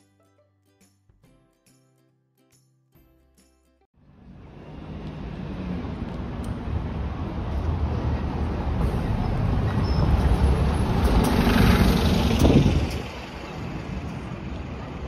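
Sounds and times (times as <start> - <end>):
bus driving past: 4.0 - 15.0.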